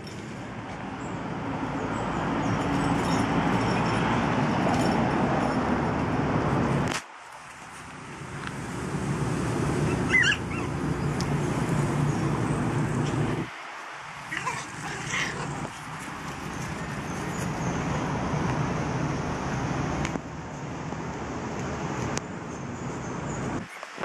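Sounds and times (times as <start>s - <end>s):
puppies yipping: 9.8s - 11.2s, 14.3s - 18.0s.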